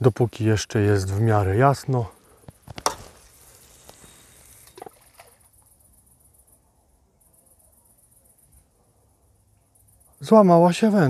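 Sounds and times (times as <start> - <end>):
crickets chirping: 0.0 - 11.0
fishing rod snapping: 2.7 - 3.2
line hissing off reel: 2.8 - 5.5
splash in water: 4.6 - 5.5.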